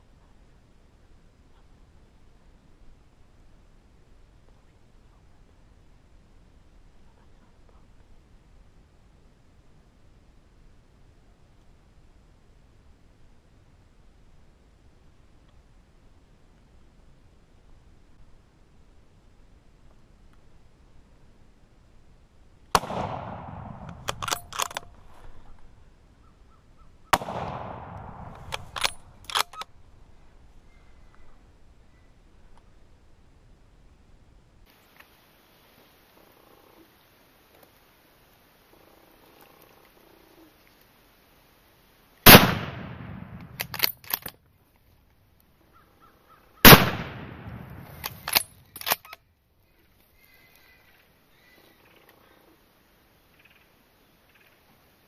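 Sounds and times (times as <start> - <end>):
rifle shots echoing: 22.7 - 24.9, 27.1 - 29.6, 42.2 - 44.1, 46.6 - 48.6
rifle bolt metallic clicks: 22.8 - 25.0, 27.2 - 29.7, 42.3 - 44.4, 46.7 - 49.2.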